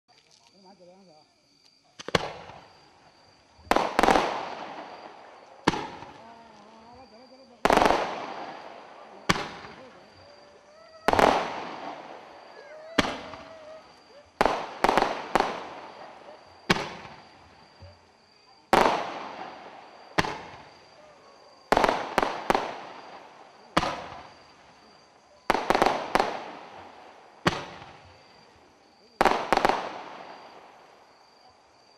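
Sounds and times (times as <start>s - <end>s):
firework bangs: 2.0s - 6.5s, 7.4s - 31.0s.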